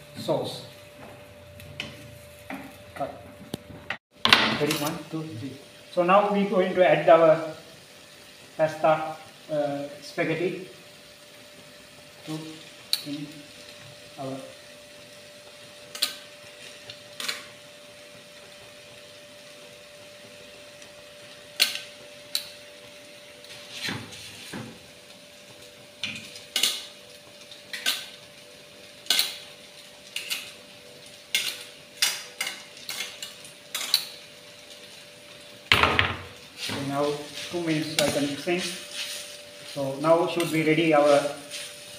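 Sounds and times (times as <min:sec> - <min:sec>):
metal tongs clinking on pans: 0:27.7 - 0:28.1, 0:29.0 - 0:29.4, 0:30.1 - 0:30.6, 0:31.3 - 0:34.2.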